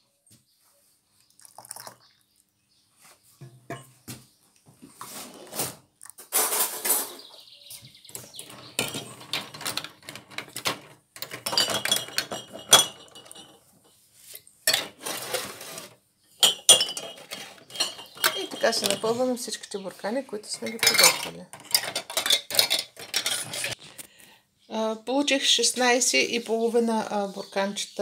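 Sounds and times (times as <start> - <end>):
liquid pouring: 1.3 - 2.2
glass jars clinking on tray: 8.5 - 13.6, 14.7 - 15.3, 16.4 - 19.6, 20.5 - 23.8.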